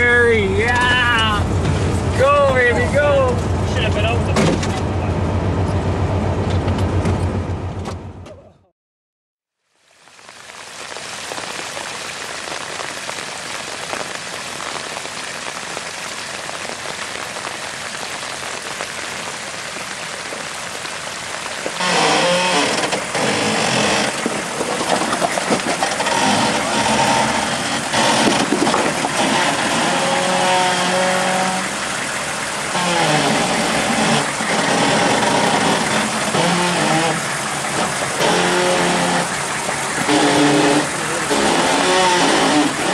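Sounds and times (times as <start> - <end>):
engine working: 0.0 - 8.4, 21.7 - 42.9.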